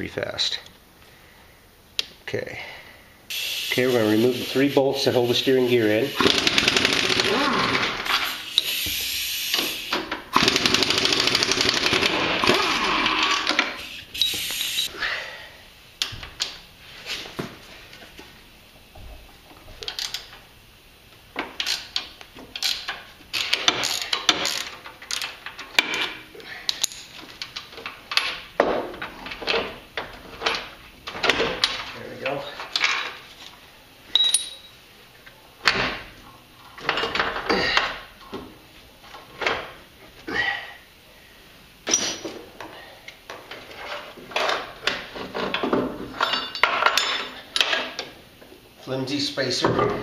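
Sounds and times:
ratcheting wrench clicking: 21.6s - 26.1s
metal clinks: 34.1s - 34.8s.

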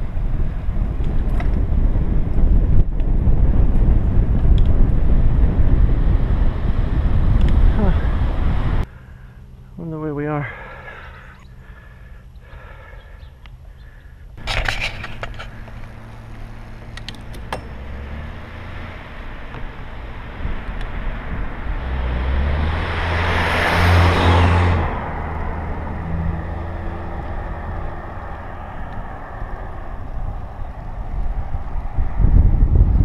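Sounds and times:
car passing by: 17.7s - 32.5s.

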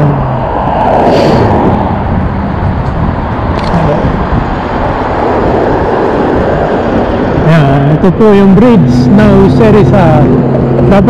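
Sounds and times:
car passing: 0.0s - 11.0s
rushing road noise: 0.0s - 11.0s.

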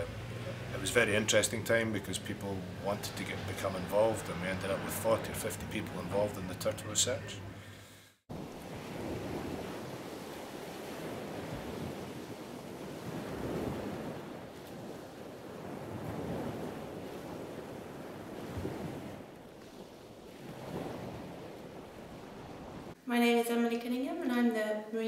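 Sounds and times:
wind on microphone: 8.3s - 22.9s
surf washing onto beach: 8.3s - 23.0s.

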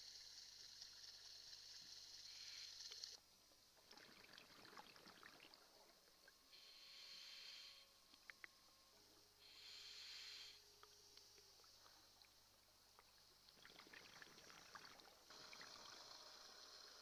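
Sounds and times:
scuba regulator inhale hiss: 0.0s - 3.2s, 6.5s - 8.0s, 9.4s - 11.0s
bubbly exhale underwater: 3.9s - 5.8s, 13.5s - 16.6s.

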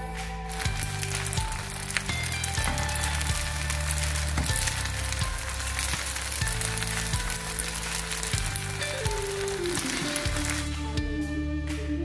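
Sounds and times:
background music low notes: 0.0s - 12.0s
food sizzling in a pan: 0.5s - 10.7s.

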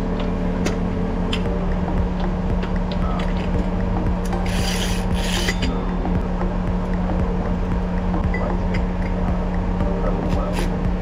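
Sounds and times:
low mechanical hum: 0.0s - 11.0s
rasping scrapes: 4.4s - 5.7s.

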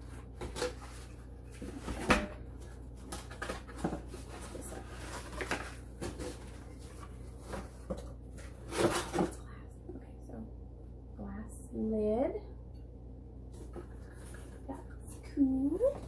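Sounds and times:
packaging rustling: 0.0s - 9.4s.

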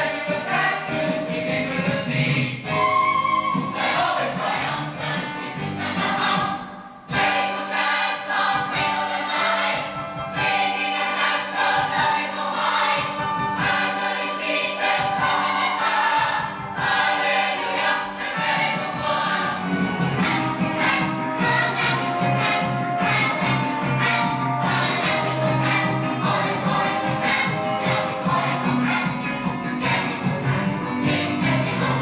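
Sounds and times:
group of voices singing: 0.0s - 32.0s.

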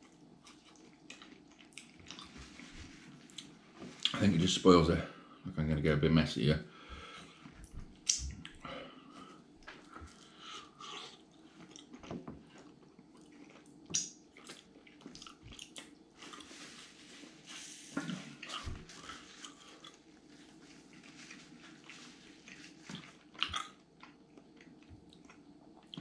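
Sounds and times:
chewing with mouth clicks: 0.0s - 2.6s, 9.6s - 16.6s, 20.8s - 26.0s.

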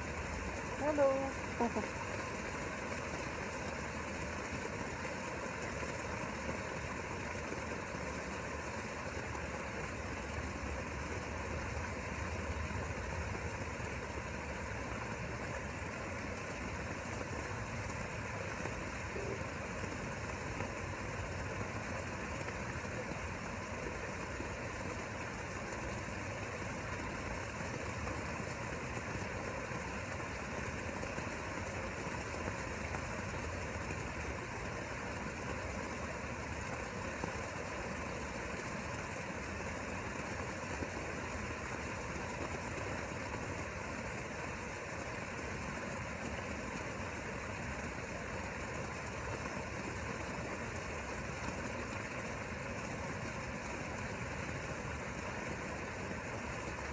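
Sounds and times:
steady mechanical hum: 0.0s - 56.9s.

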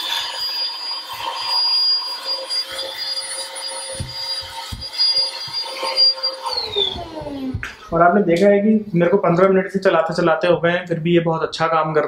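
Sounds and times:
handheld vacuum motor whine: 0.0s - 7.8s.

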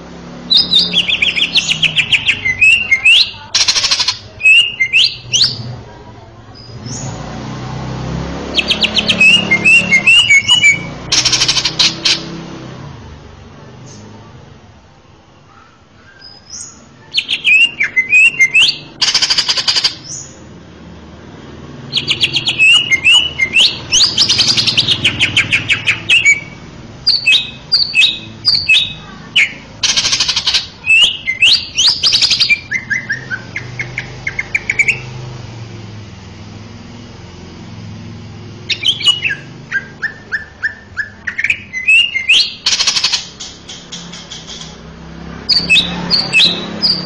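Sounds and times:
bird singing whistles and trills: 0.5s - 5.6s, 8.5s - 12.2s, 16.0s - 20.4s, 21.9s - 35.2s, 38.7s - 44.8s, 45.5s - 47.0s.

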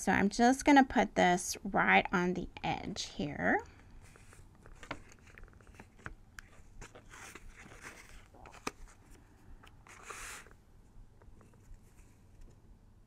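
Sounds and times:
paper rustling: 4.0s - 10.6s.

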